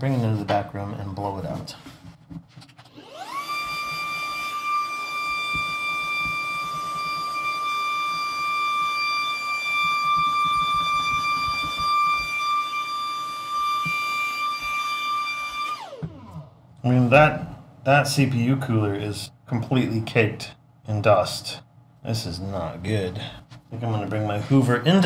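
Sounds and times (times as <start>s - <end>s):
vacuum cleaner whining: 2.8s - 16.5s.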